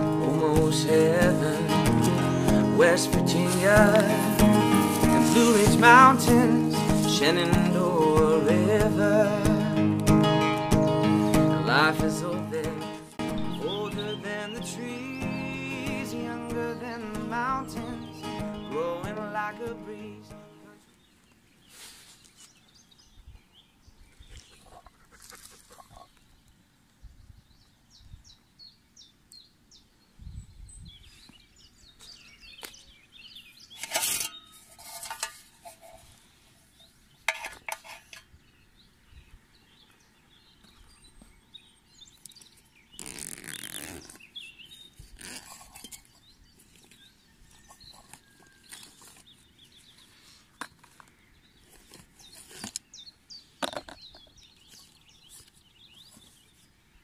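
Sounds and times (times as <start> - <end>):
rustling of handled objects: 1.9 - 6.2, 33.6 - 38.3, 42.1 - 56.8.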